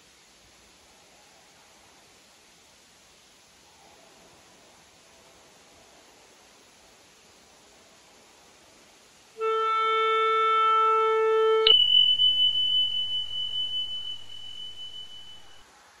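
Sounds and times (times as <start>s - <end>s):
held electronic tone: 9.4s - 15.6s
high bell-like ding: 11.6s - 15.6s.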